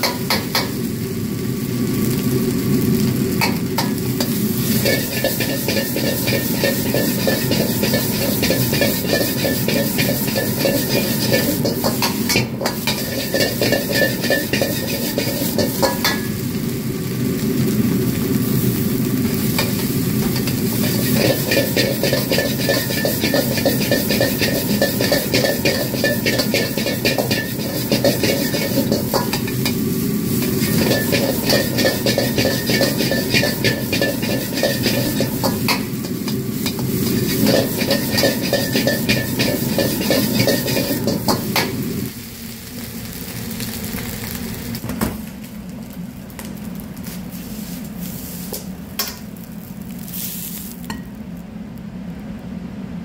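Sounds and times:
gas burner rushing: 0.0 - 42.2
rice sizzling in a wok: 0.0 - 53.0
metal ladle scraping a wok: 3.9 - 16.3, 19.5 - 41.8.

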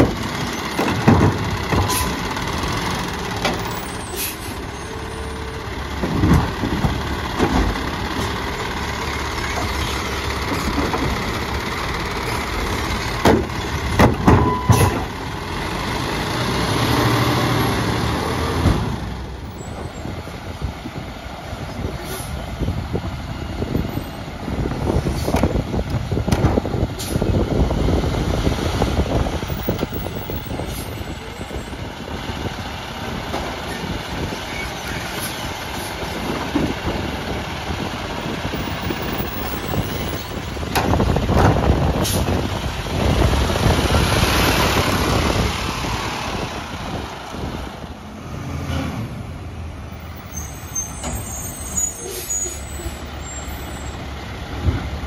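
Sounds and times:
metal clanks and knocks: 0.0 - 2.2
garbage truck engine running: 0.0 - 48.4.

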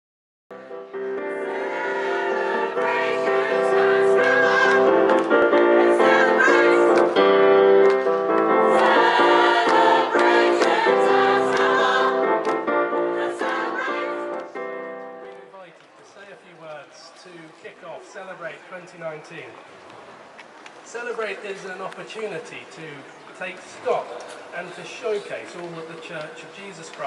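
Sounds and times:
mixed choir singing: 1.0 - 7.4, 8.4 - 14.6.

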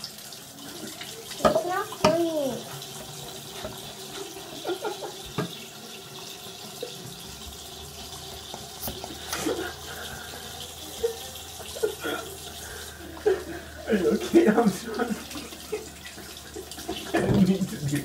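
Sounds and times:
tap running into a sink: 1.0 - 9.6, 16.2 - 18.0.

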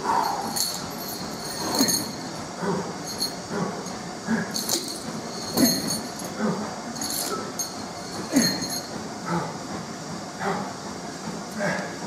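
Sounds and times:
chain clinking against weight plate: 0.1 - 9.0.

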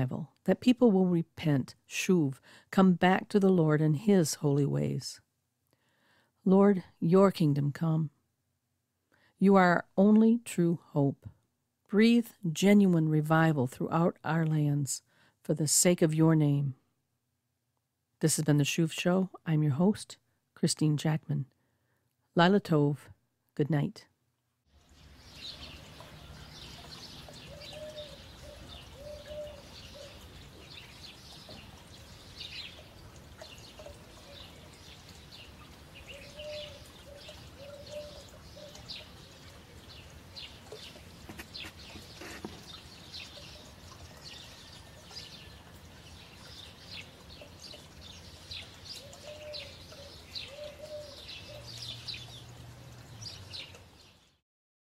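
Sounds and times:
small birds chirping: 24.8 - 54.4
low cooing bird call: 26.0 - 30.8, 36.0 - 39.2, 49.0 - 52.3.

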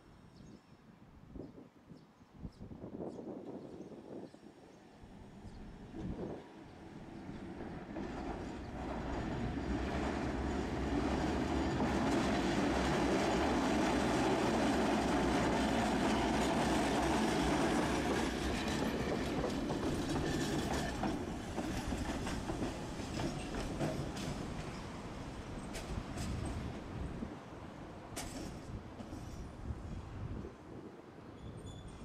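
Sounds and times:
tram wheels rumbling on rails: 5.7 - 30.2.

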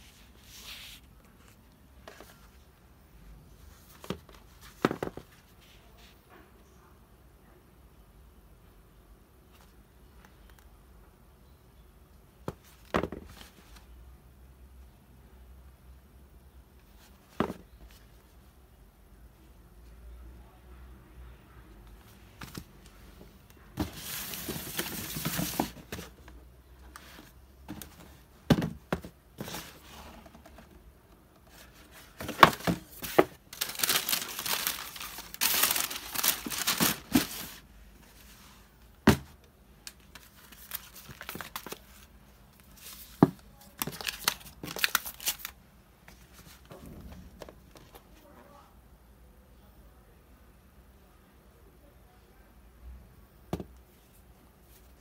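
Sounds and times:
tissue paper crinkling: 32.2 - 37.6.

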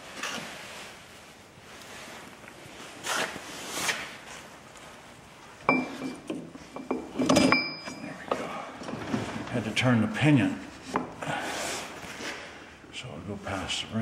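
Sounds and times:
ringing metal clinks: 5.7 - 8.2.

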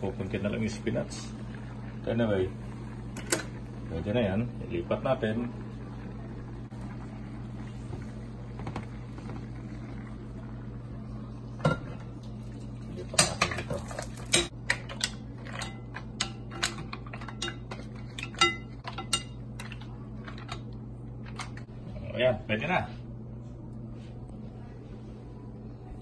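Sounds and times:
low hum: 0.0 - 13.0, 13.9 - 26.0.

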